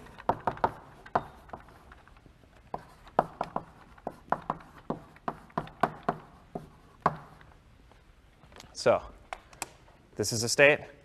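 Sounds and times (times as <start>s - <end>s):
chalk tapping on blackboard: 0.0s - 2.0s, 2.6s - 7.5s.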